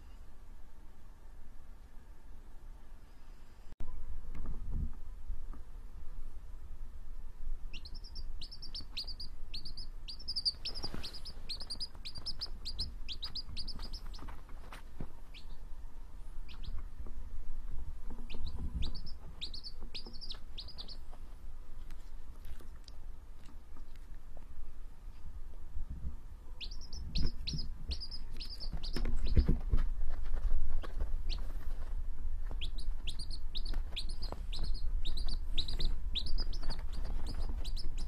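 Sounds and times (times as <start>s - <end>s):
chick peeping: 7.7s - 15.7s, 16.4s - 17.1s, 18.0s - 21.3s, 26.4s - 29.8s, 30.4s - 38.0s.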